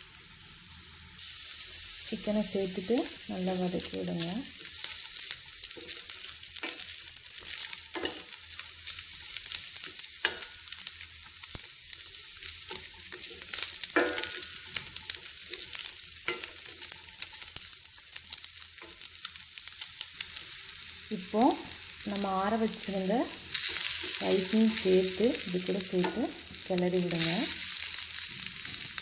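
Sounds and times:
oil sizzling in a pan: 0.0 - 29.0
spatula scraping and knocking pan: 4.6 - 8.4, 12.6 - 17.6.

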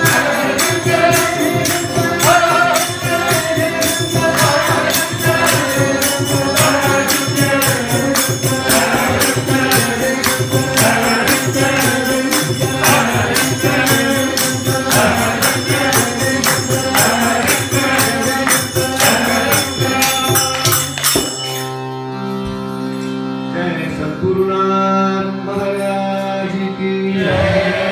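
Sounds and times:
group chanting: 0.0 - 21.0, 27.0 - 27.9
jingling percussion: 0.0 - 23.1.

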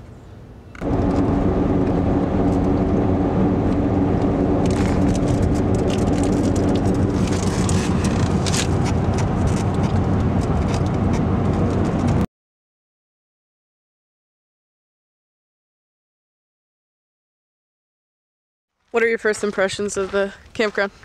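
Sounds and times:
tyre and engine drone: 0.0 - 12.3
wind rush: 0.8 - 12.2.

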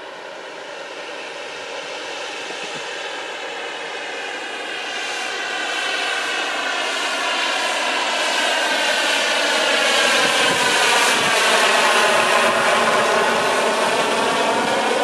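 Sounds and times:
model helicopter turbine whine: 0.0 - 15.0.

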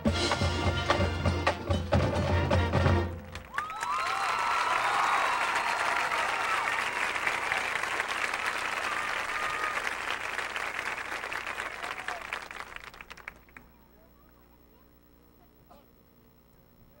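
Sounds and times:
audience applauding: 3.2 - 13.7
audience cheering: 3.3 - 13.5.

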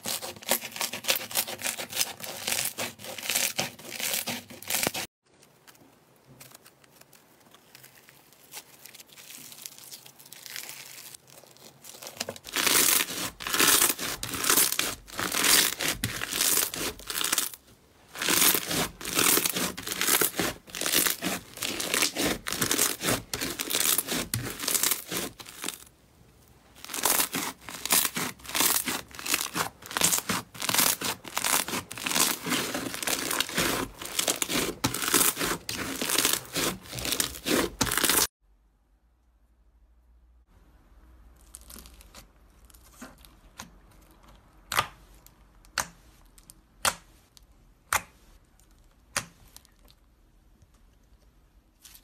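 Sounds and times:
slime crackling and popping: 18.2 - 25.9, 26.8 - 38.3.

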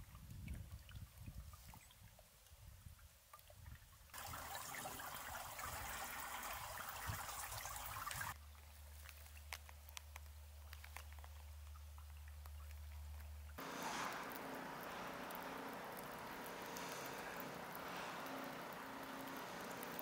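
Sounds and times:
water trickling under ice: 0.0 - 20.0
running water hiss: 4.1 - 9.6, 11.2 - 20.0
small ticks: 8.6 - 20.0.

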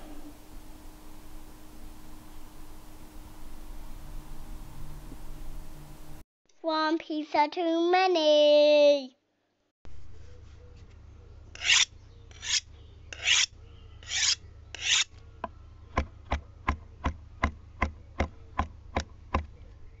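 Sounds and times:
low steady hum: 0.0 - 6.2, 9.9 - 20.0
rasping scrapes: 11.5 - 15.2.

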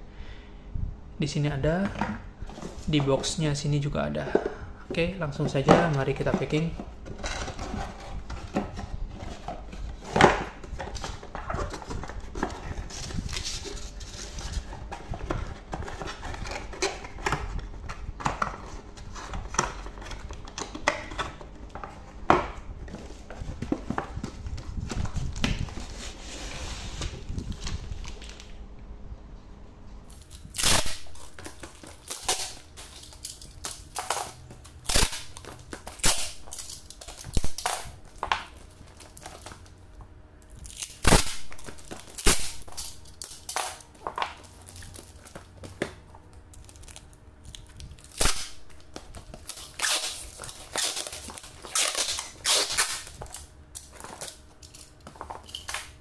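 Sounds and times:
rustling of wrapping: 5.5 - 22.2, 22.8 - 28.5, 40.6 - 56.0
packing tape ripping off roll: 30.1 - 39.6, 40.6 - 45.4, 46.5 - 56.0.

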